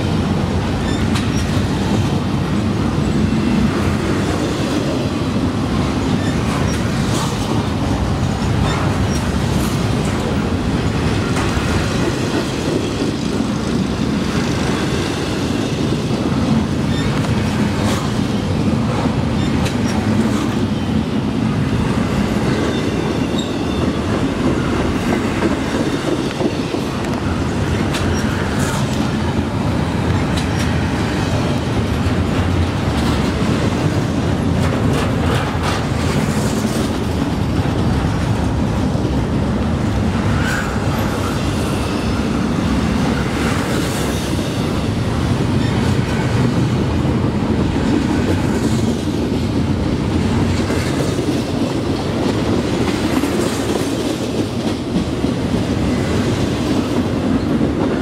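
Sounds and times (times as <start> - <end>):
train wheels rumbling on rail: 0.0 - 58.0
wheels clicking over rail joints: 0.3 - 20.7, 22.4 - 41.8.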